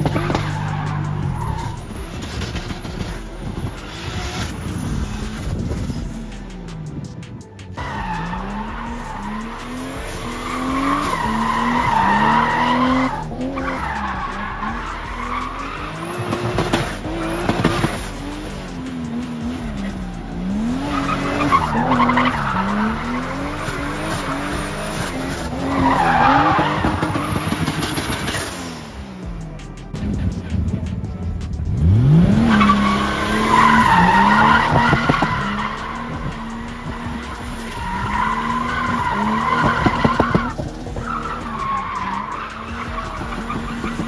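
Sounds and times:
car engine revving: 0:00.0 - 0:44.0
tyres squealing: 0:07.8 - 0:28.5, 0:32.3 - 0:44.0.

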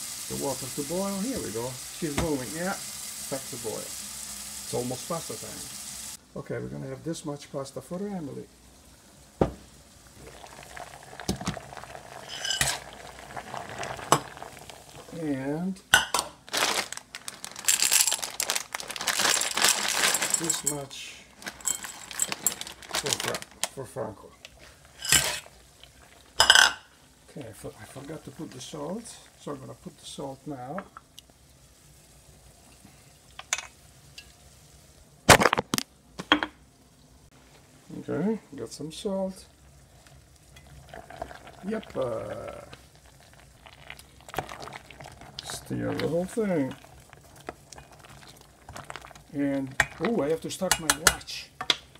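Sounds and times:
kitchen sizzling: 0:00.0 - 0:51.9
pot boiling with bubbling hiss: 0:00.0 - 0:51.9
loud thump: 0:09.4 - 0:09.7.

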